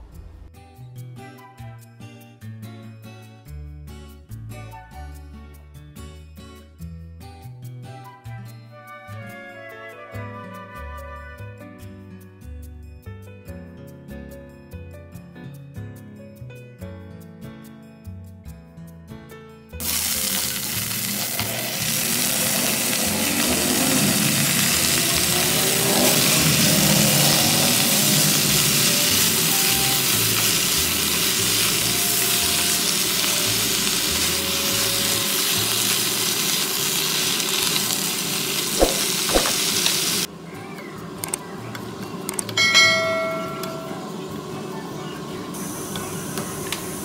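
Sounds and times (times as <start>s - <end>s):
greens sizzling in hot oil: 19.8s - 40.3s, 45.1s - 47.0s
utensil stirring greens: 19.8s - 40.3s.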